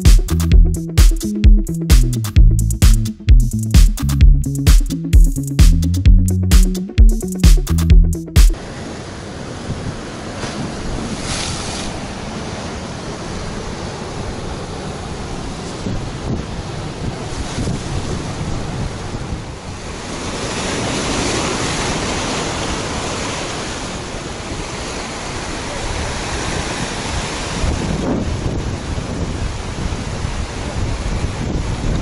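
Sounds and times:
surf breaking over rocks: 0:08.5 - 0:32.0
wind buffeting microphone: 0:15.5 - 0:19.8, 0:26.4 - 0:32.0.

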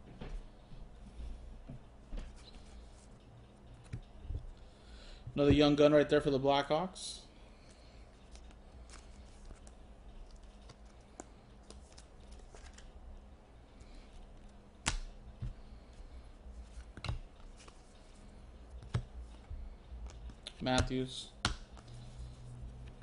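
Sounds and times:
low steady hum: 0:00.0 - 0:23.0
cards rustling: 0:07.6 - 0:13.0, 0:13.7 - 0:23.0
cards tapping on desk: 0:18.8 - 0:19.1.

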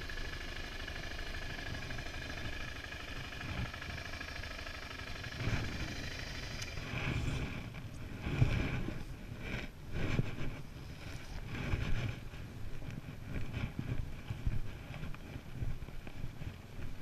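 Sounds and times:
low thumps over rough ground: 0:00.0 - 0:17.0
motorcycle engine running: 0:00.0 - 0:17.0
wind buffeting microphone: 0:05.3 - 0:17.0.

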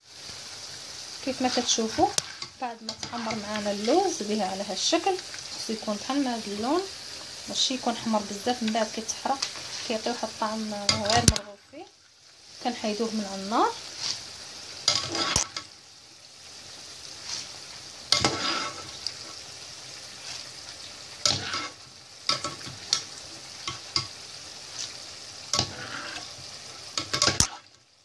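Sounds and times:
nuts sizzling in hot oil: 0:00.0 - 0:28.0
metal skimmer scraping a pot: 0:25.6 - 0:26.3.

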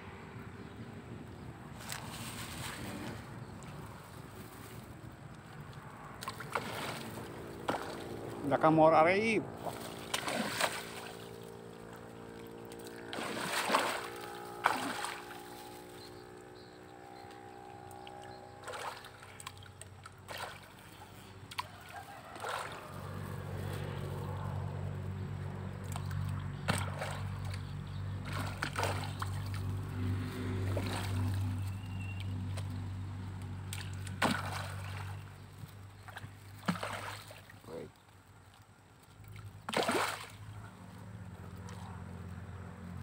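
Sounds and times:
motor-like hum: 0:00.0 - 0:43.0
fish splashing in water: 0:05.7 - 0:08.4, 0:09.5 - 0:16.4, 0:17.2 - 0:24.8, 0:25.7 - 0:42.5.

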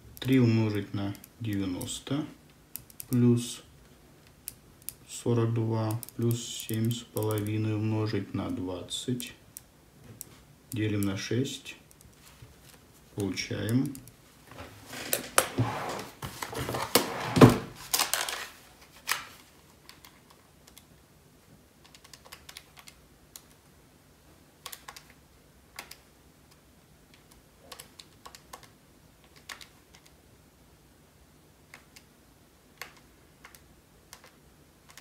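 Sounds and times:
rustling handling noise: 0:12.0 - 0:13.4, 0:14.2 - 0:20.3.

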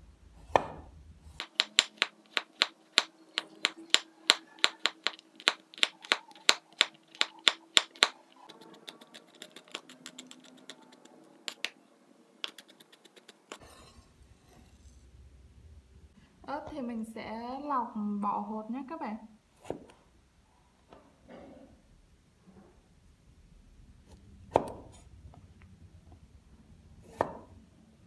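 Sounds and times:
cleaver chopping on wooden board: 0:00.5 - 0:00.8, 0:01.4 - 0:08.2, 0:24.5 - 0:24.9, 0:27.1 - 0:27.5.

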